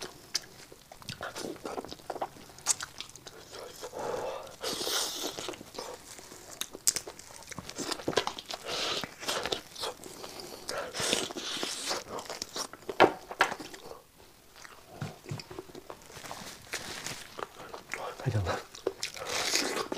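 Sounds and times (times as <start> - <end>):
person crunching and chewing: 0.0 - 19.9.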